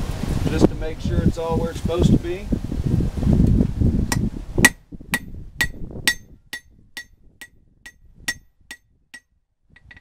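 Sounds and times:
hammer ringing on anvil: 0:05.2 - 0:09.3.

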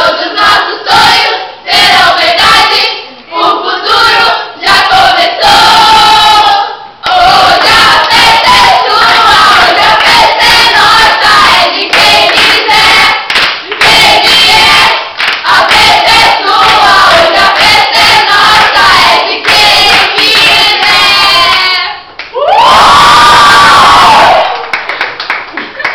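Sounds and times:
teenagers singing in chorus: 0:00.0 - 0:22.1
people clapping along: 0:07.0 - 0:22.5, 0:24.0 - 0:25.9.

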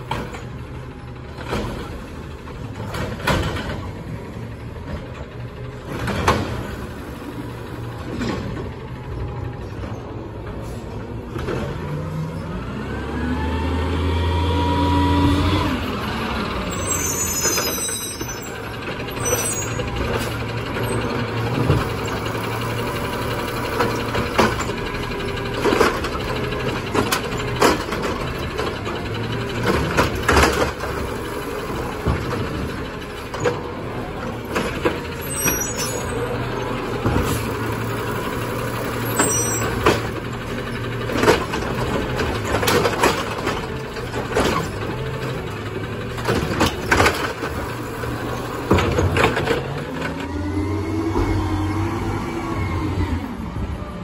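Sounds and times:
garbage truck engine: 0:00.0 - 0:54.0
knocks and clanks: 0:01.3 - 0:04.2, 0:04.8 - 0:06.9, 0:23.5 - 0:31.1, 0:31.8 - 0:36.2, 0:39.0 - 0:47.8, 0:48.4 - 0:50.3
air brakes hissing: 0:10.5 - 0:11.1.

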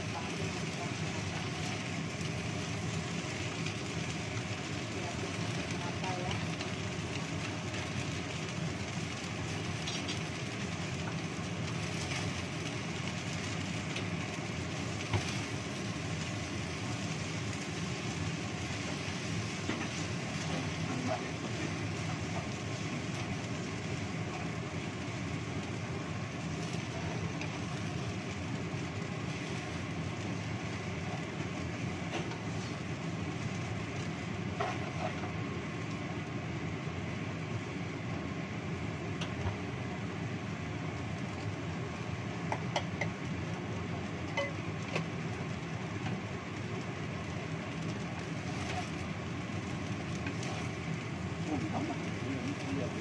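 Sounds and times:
stir-frying in a wok: 0:00.0 - 0:53.0.

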